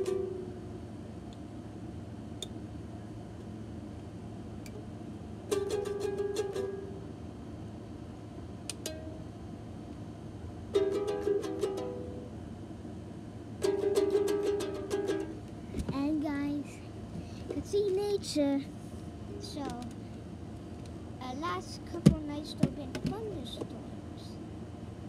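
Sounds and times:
plastic toy guitar strummed: 0:00.0 - 0:00.5, 0:05.5 - 0:06.9, 0:10.7 - 0:12.2, 0:13.6 - 0:15.4.

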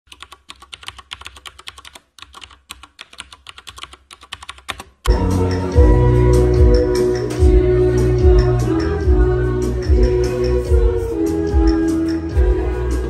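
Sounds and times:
keyboard typing clicks: 0:00.1 - 0:05.2
music: 0:05.1 - 0:13.0.

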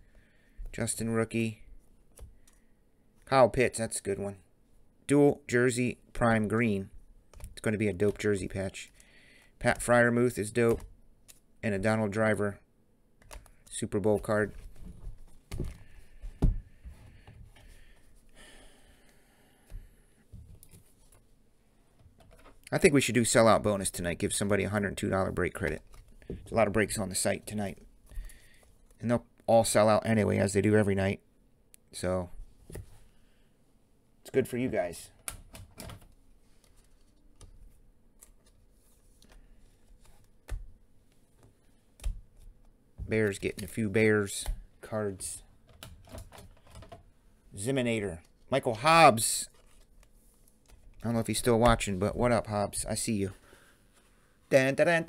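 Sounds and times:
cards sliding and rustling: 0:36.4 - 0:40.4, 0:49.4 - 0:52.1.

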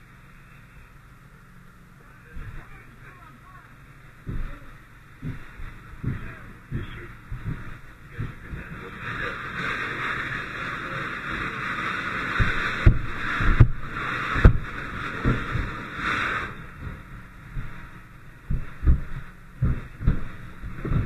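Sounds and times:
steady hiss: 0:00.0 - 0:21.0
dull knocks and bumps: 0:02.4 - 0:02.8, 0:04.2 - 0:08.8, 0:12.4 - 0:15.9, 0:16.7 - 0:21.0.

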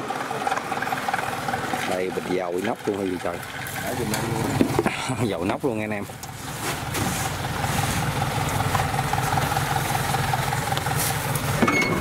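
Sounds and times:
combine harvester engine running: 0:00.0 - 0:12.0
metal clank: 0:11.5 - 0:12.0.

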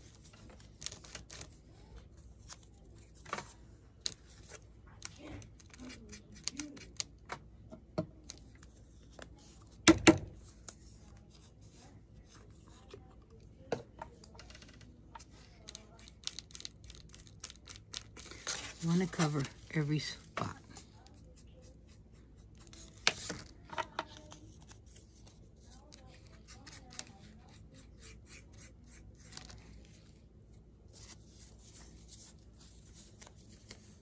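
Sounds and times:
paper rustling: 0:00.0 - 0:07.1, 0:15.3 - 0:21.7, 0:30.8 - 0:34.0.

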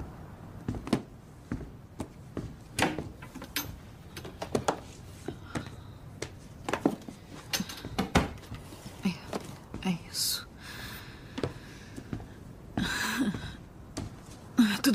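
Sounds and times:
objects knocking and clattering: 0:02.8 - 0:04.9, 0:06.7 - 0:09.7.

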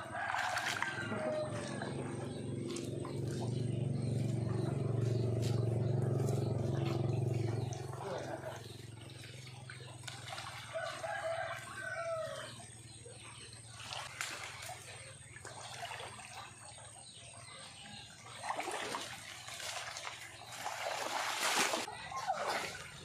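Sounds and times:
rooster crowing: 0:00.0 - 0:02.0, 0:10.7 - 0:12.5
water splashing and sloshing: 0:00.0 - 0:23.0.

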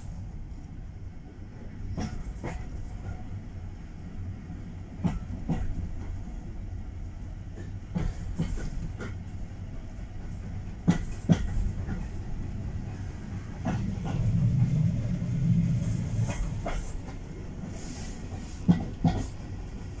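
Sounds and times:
train carriage rumble: 0:00.0 - 0:20.0
wheels clicking over rail joints: 0:10.2 - 0:14.9, 0:18.3 - 0:19.5.

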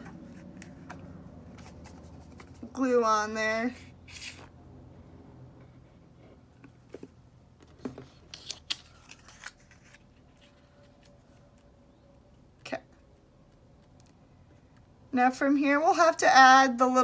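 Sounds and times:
paper rustling: 0:07.7 - 0:11.6.

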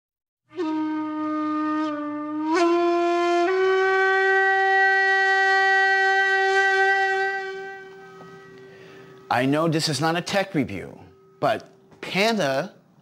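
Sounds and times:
horn-like rising tones: 0:00.5 - 0:09.6.

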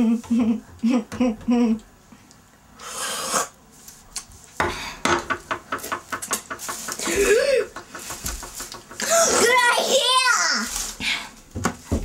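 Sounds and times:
sharp clicks and clatters: 0:05.5 - 0:09.1
child squealing: 0:09.0 - 0:10.7.

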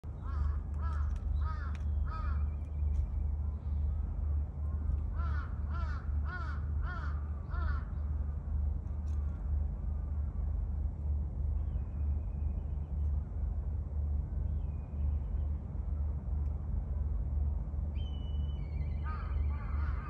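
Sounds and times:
low rumble: 0:00.0 - 0:20.0
bird cawing: 0:00.2 - 0:02.5, 0:05.1 - 0:08.0, 0:18.9 - 0:20.0.

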